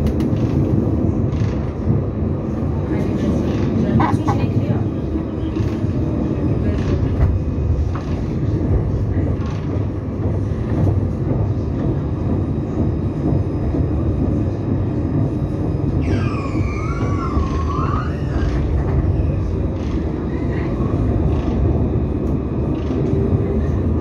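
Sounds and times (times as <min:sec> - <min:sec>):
tram wheels rumbling on rails: 0:00.0 - 0:24.0
high wavering squeal: 0:16.0 - 0:18.5.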